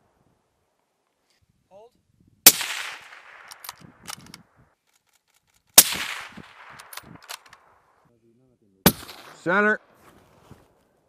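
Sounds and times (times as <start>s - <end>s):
rifle shot echoing: 2.4s - 4.2s, 5.8s - 7.8s, 8.8s - 9.7s
rifle bolt clicks: 3.3s - 7.6s.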